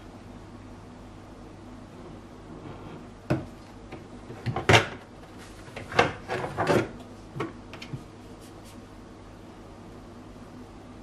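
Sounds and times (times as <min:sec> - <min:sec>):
fridge shelves clattering: 0:02.6 - 0:08.0.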